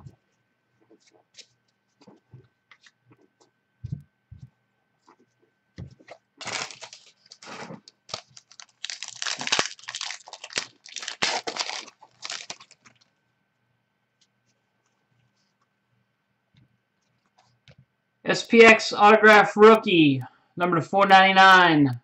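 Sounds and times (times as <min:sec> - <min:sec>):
foil wrapper tearing and crinkling: 0:06.4 - 0:13.0.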